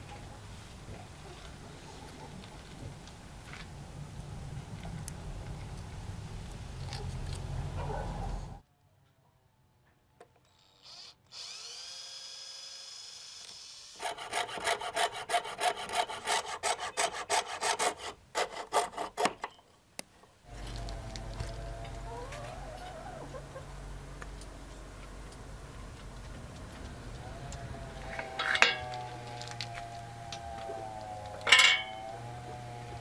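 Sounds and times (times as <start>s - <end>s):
drill whining: 10.5s - 14.1s
saw rasping through wood: 13.9s - 19.4s.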